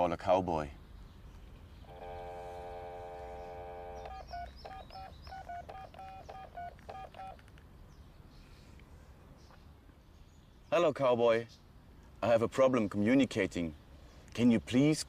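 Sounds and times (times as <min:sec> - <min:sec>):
telephone dial tone: 0:01.9 - 0:07.4
touch-tone keypad beeps: 0:04.0 - 0:07.4.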